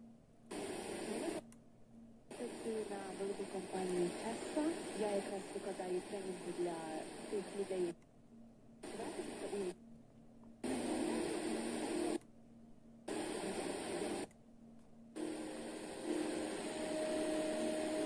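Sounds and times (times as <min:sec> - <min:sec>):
radio hiss: 0:00.5 - 0:01.5, 0:02.3 - 0:08.0, 0:08.8 - 0:09.8, 0:10.6 - 0:12.2, 0:13.1 - 0:14.3, 0:15.2 - 0:18.0.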